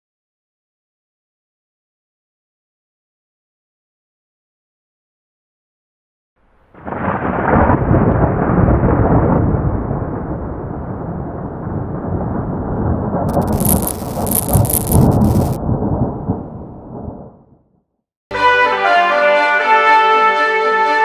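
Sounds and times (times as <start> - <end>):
thunder rumbling: 6.7 - 17.5
high hiss: 13.3 - 15.6.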